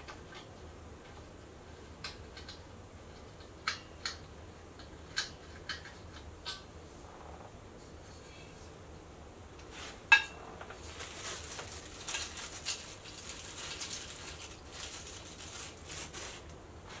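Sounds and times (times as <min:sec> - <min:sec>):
small metal clicks and scrapes: 0:02.0 - 0:06.7.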